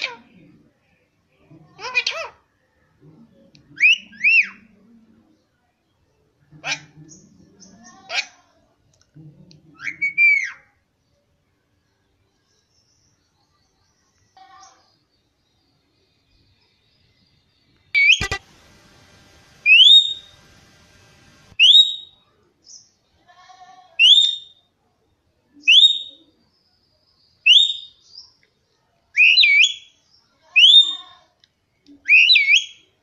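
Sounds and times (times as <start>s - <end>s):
parakeet whistled calls: 19.6s - 20.4s, 21.6s - 22.2s.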